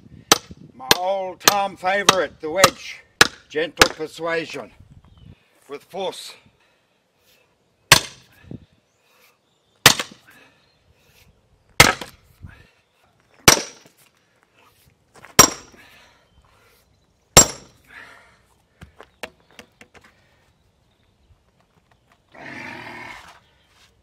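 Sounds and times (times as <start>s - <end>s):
hammer striking steel wedge: 0.3s - 4.0s, 9.9s - 10.2s, 13.5s - 13.8s, 15.4s - 15.8s, 17.4s - 17.8s.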